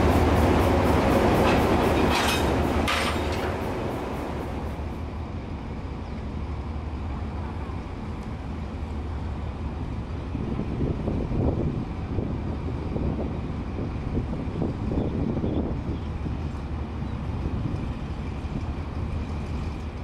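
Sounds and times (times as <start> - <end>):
locomotive engine drone: 0.0 - 20.0.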